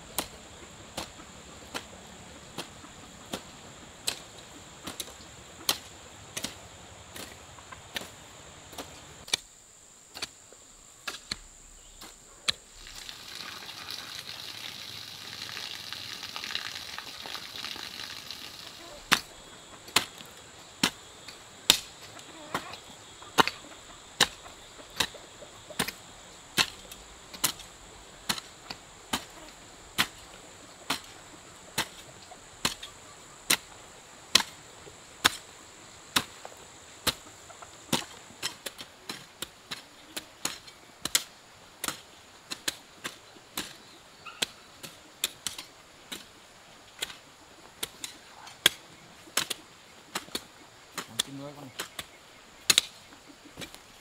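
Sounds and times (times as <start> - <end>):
steady high hiss: 0.0 - 54.0
hoe chopping into soil: 0.1 - 9.5, 10.1 - 10.4, 11.0 - 22.8, 23.4 - 32.9, 33.5 - 34.6, 35.2 - 35.5, 36.1 - 37.3, 37.9 - 47.2, 47.8 - 53.8.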